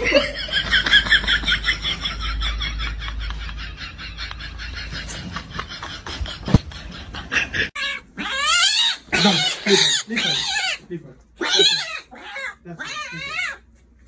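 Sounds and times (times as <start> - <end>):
kitten mewing: 7.8 - 10.8, 11.4 - 13.6.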